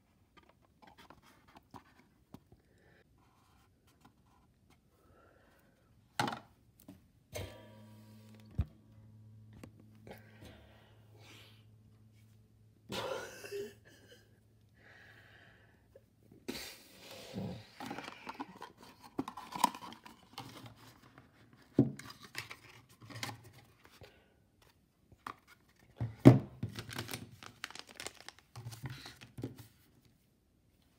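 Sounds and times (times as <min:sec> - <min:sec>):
cardboard packaging rustling: 0:26.6 - 0:29.8.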